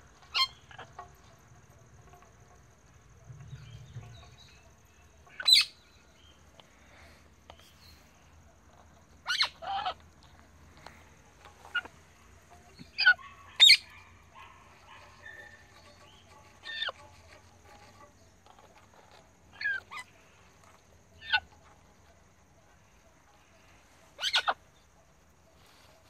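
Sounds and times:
parrots chattering: 0:00.2 - 0:01.0, 0:05.3 - 0:05.8, 0:09.2 - 0:10.0, 0:11.5 - 0:12.0, 0:12.7 - 0:15.6, 0:16.6 - 0:17.0, 0:19.5 - 0:20.2, 0:21.2 - 0:21.5, 0:24.2 - 0:24.7
parrots squawking: 0:05.4 - 0:05.8, 0:09.2 - 0:10.0, 0:12.9 - 0:14.1, 0:24.2 - 0:24.6.

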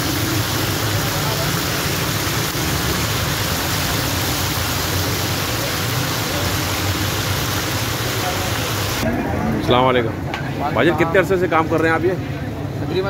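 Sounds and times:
fish sizzling in hot oil: 0:00.0 - 0:09.0.

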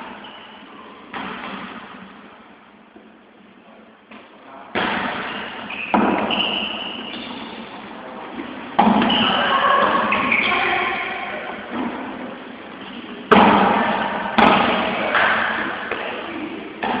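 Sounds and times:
volleyball thumps echoing in hall: 0:00.0 - 0:03.3, 0:04.0 - 0:17.0.

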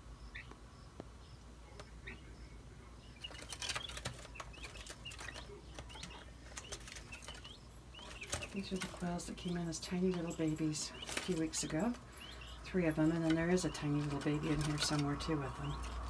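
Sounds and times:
birds fluttering wings: 0:03.2 - 0:16.0.

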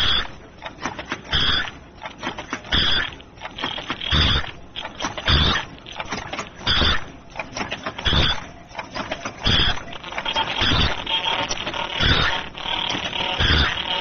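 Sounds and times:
machine clicking and rattling: 0:00.0 - 0:14.0
machine hissing burst with thump: 0:13.4 - 0:13.9.

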